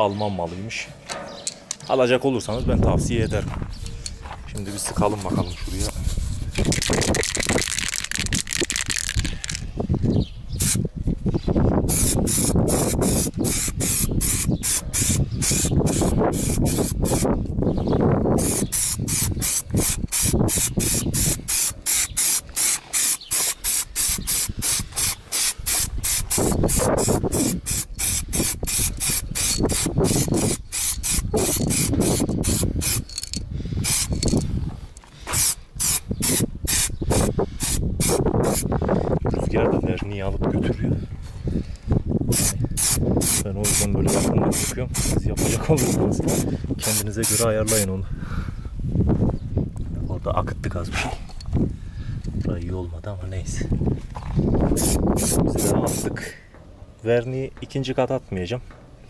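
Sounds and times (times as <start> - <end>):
wind on microphone: 2.4 - 56.9
aerosol can spraying: 11.9 - 17.3, 18.4 - 33.1, 33.8 - 34.4, 35.3 - 38.6, 42.3 - 47.8, 54.8 - 56.0.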